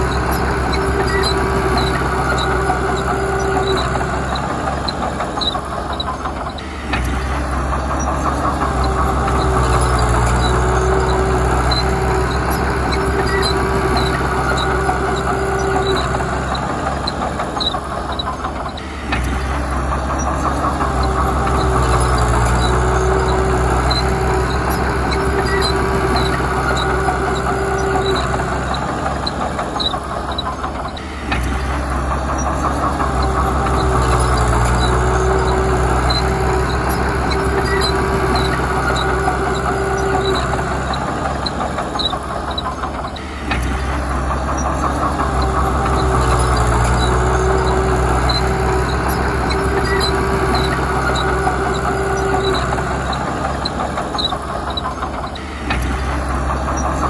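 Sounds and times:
diesel engine under load: 0.0 - 57.0.

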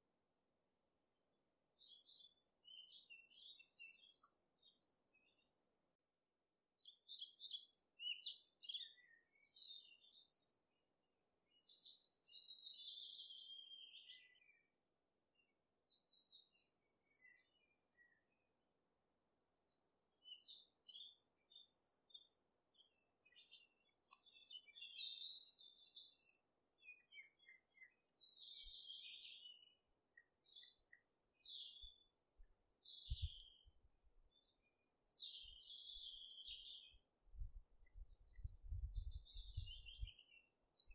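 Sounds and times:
birds chirping: 11.2 - 14.7, 20.0 - 33.7, 34.3 - 40.9.

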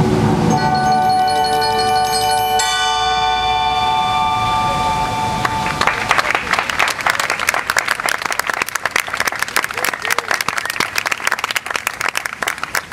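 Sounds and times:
music final chord ringing: 0.0 - 6.0
audience applause: 5.4 - 12.9.

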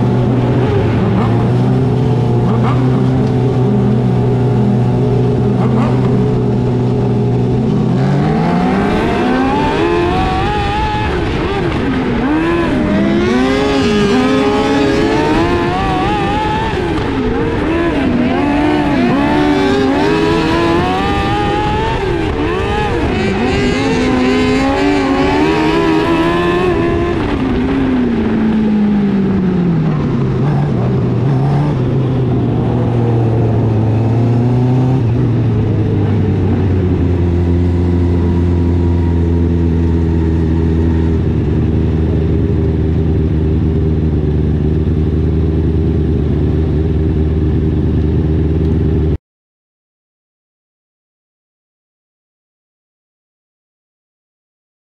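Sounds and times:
race car engine revving: 0.0 - 28.4.

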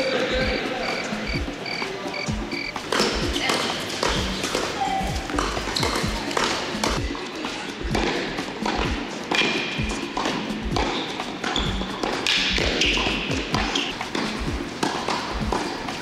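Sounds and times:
thudding electronic drum beat: 0.4 - 3.4, 5.1 - 6.2, 6.8 - 7.2, 7.9 - 8.1, 9.8 - 10.0, 10.6 - 10.9, 14.4 - 14.7.

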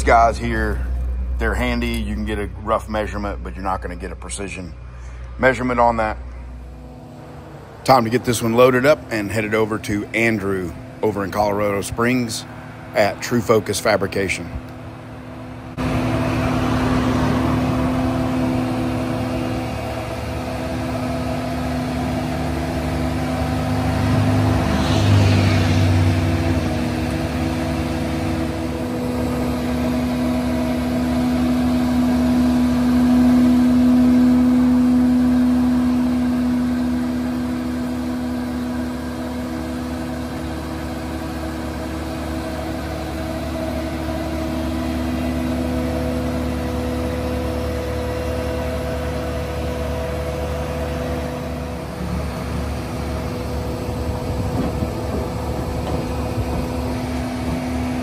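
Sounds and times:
forklift engine humming: 0.0 - 58.0.

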